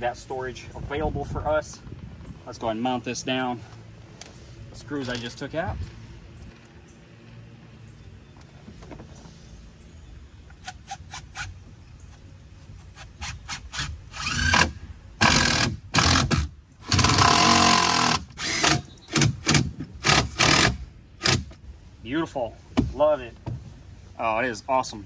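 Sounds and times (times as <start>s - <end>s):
power drill driving screws: 13.0s - 21.5s.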